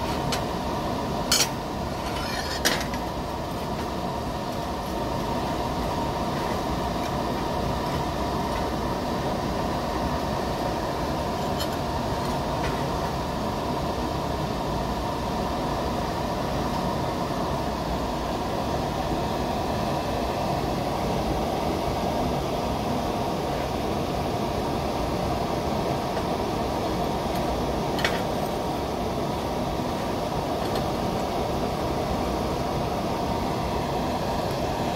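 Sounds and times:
constant hum: 0.0 - 34.9.

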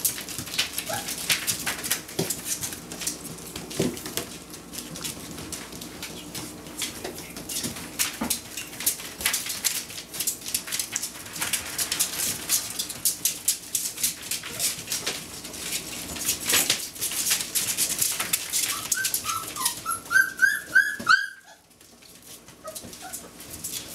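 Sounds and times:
puppy claws clicking on floor: 0.0 - 23.9
puppy whimpering: 0.8 - 1.2, 18.6 - 21.7, 22.6 - 23.3.

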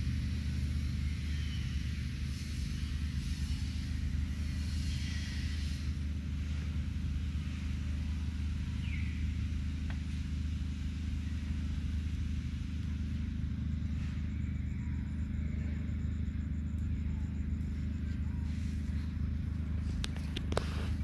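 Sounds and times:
low humming rumble: 0.0 - 21.0.

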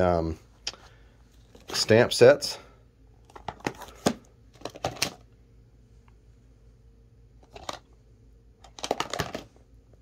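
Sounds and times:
plastic cases clicking and clattering: 3.2 - 5.2, 7.4 - 7.9, 8.6 - 9.6.

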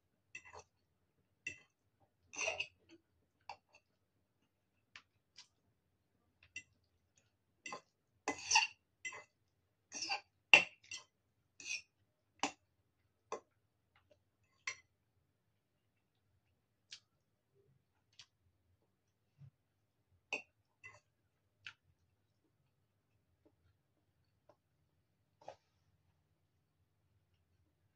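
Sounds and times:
fork scraping ceramic bowl: 2.3 - 2.8, 7.7 - 9.3, 9.9 - 11.9.

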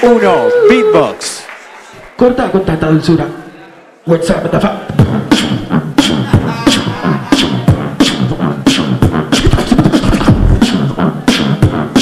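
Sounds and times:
beatboxing vocal snares: 4.4 - 12.0.

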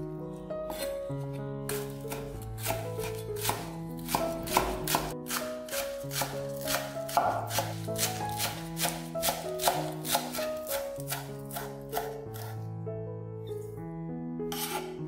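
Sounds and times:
background music: 0.0 - 15.0
knife chopping on wooden board: 0.7 - 0.9, 1.7 - 12.6, 14.5 - 15.0.

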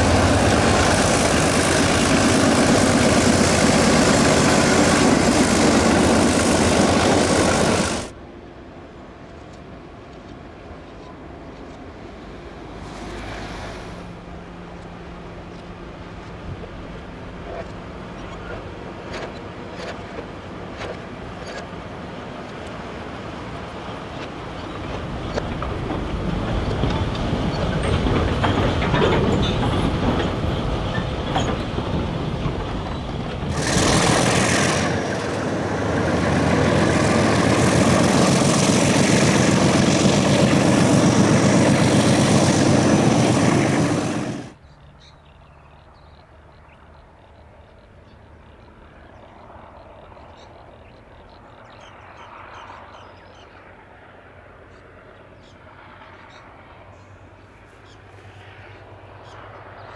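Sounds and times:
diesel locomotive running: 0.0 - 45.4.

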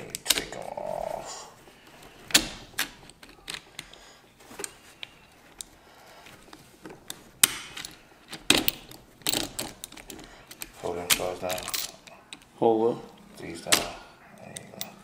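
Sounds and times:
hand tools and metal parts clicking: 2.2 - 12.5, 13.6 - 15.0.

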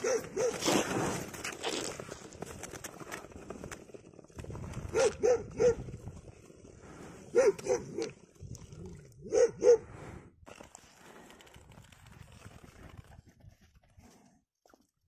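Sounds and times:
dog barking: 0.0 - 0.7, 4.9 - 5.8, 7.3 - 8.1, 9.2 - 9.9.

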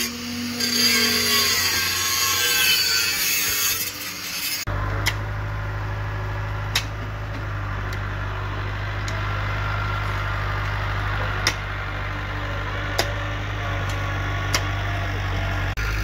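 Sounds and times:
engine idling: 4.7 - 16.0.

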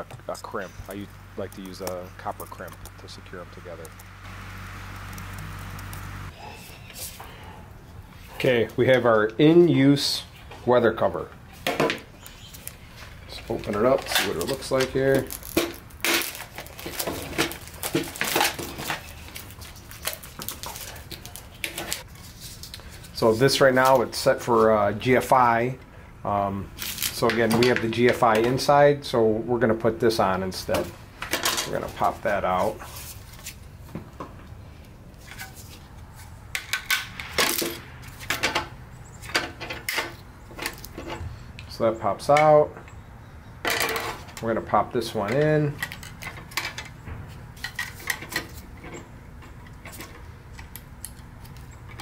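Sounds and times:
plastic packaging crinkling: 13.7 - 22.8.

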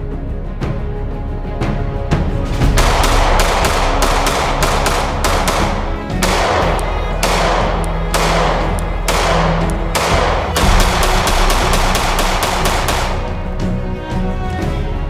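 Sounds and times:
background music: 0.0 - 15.0
pistol shots: 2.8 - 13.5.

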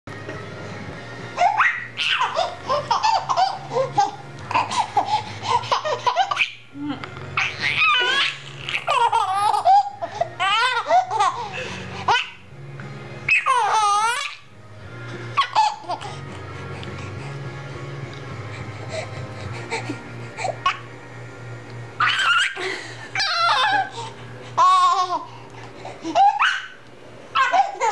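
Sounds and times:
baby laughing squeal: 1.4 - 5.1, 5.7 - 6.6, 7.4 - 11.5, 13.3 - 14.5, 22.0 - 22.6, 23.2 - 24.0, 26.1 - 26.8, 27.4 - 27.9
baby laughing: 1.4 - 12.4, 13.3 - 14.5, 15.4 - 16.5, 18.9 - 20.9, 22.0 - 27.9.

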